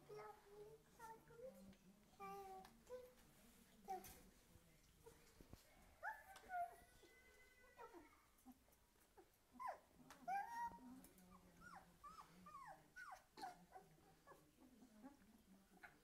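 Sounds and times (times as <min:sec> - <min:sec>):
puppies whimpering and squeaking: 0:09.6 - 0:15.2.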